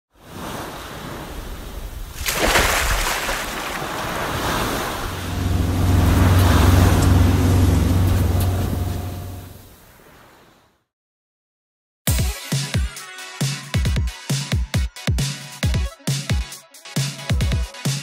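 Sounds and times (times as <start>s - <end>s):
ocean waves washing: 0.2s - 10.6s
steady low drone: 5.0s - 9.7s.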